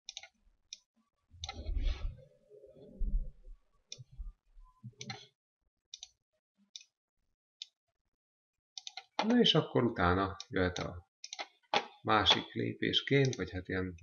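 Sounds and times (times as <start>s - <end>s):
computer mouse clicking: 0.0s - 1.6s, 5.0s - 5.3s, 5.9s - 6.2s, 6.8s - 7.0s, 8.8s - 9.4s, 10.4s - 11.9s.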